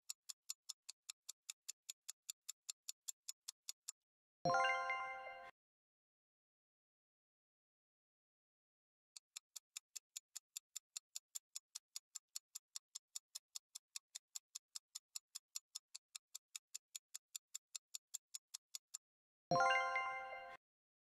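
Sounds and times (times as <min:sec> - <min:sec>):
timer ticking: 0:09.2 - 0:19.0.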